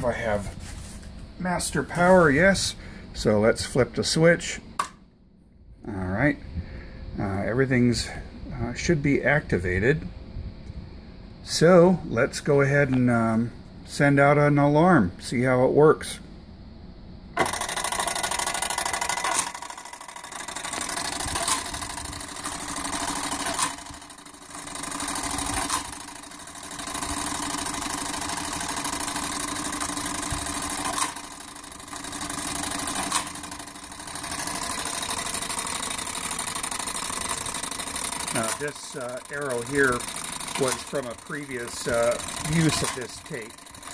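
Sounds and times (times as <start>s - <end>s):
clockwork mechanical whir: 17.4s - 43.9s
register punching clicks: 17.4s - 43.9s.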